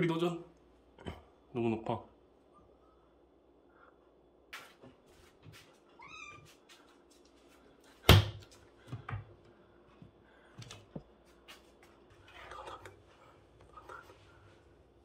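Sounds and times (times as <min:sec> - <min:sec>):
kitten meowing: 0:06.0 - 0:06.4.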